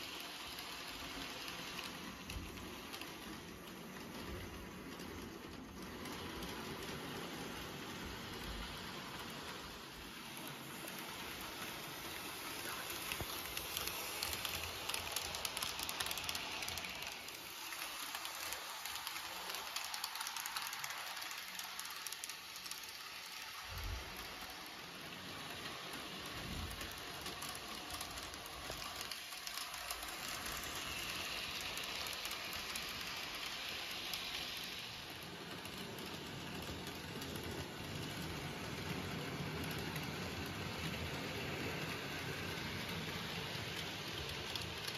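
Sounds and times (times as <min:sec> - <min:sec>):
model train whirring on track: 0:00.0 - 0:44.9
fine rapid clicking: 0:10.3 - 0:44.9.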